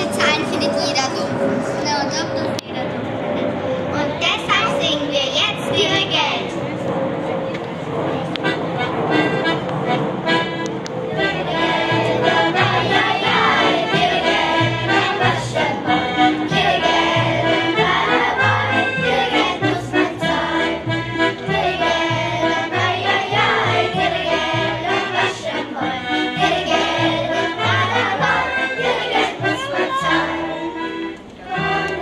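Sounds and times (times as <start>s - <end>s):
klezmer band playing: 0.0s - 2.3s, 8.3s - 32.0s
pulsing bass line: 11.3s - 25.2s.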